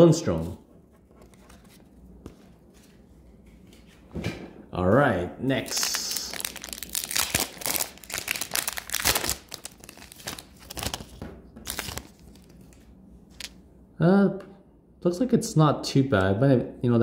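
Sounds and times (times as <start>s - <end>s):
card wrapper crinkling and tearing: 5.6s - 13.6s.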